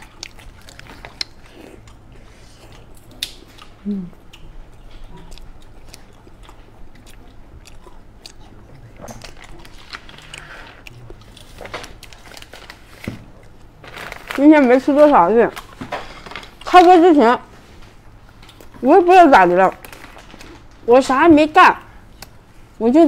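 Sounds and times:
chewing soft bread: 0.0s - 16.9s, 17.6s - 20.8s
short vocal hum: 3.8s - 4.2s.

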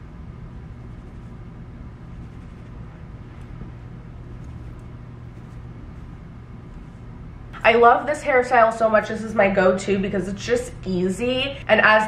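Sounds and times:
low room hum: 0.0s - 12.0s
fingers rustling through hair: 0.6s - 7.1s.

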